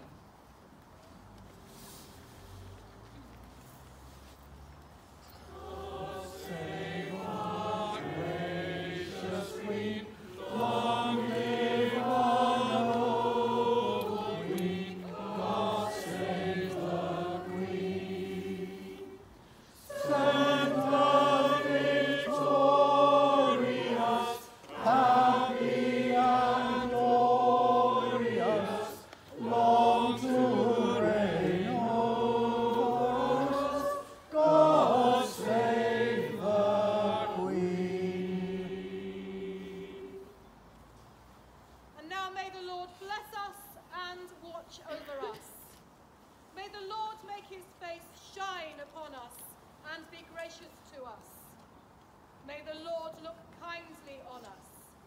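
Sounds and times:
choir singing: 0:05.3 - 0:40.5.

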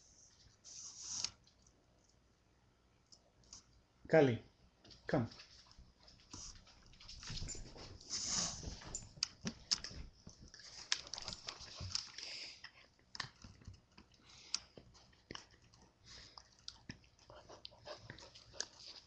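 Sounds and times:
puppy rustling on couch: 0:05.4 - 0:09.2.

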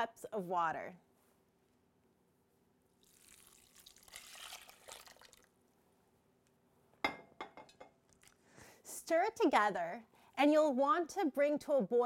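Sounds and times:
water pouring into a saucepan: 0:03.0 - 0:05.6.

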